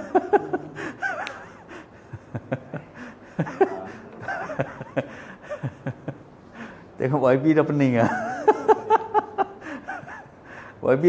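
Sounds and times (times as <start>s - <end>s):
people laughing: 0.0s - 6.3s, 8.0s - 10.3s.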